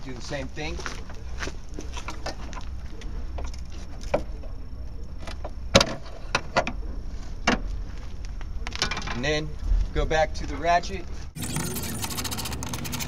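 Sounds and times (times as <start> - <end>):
sharp metallic clicks: 11.4 - 13.0.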